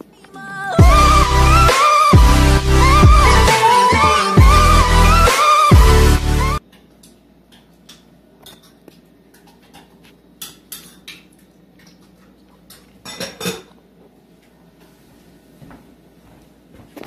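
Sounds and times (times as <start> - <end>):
dishes clicking and clinking: 6.7 - 13.8.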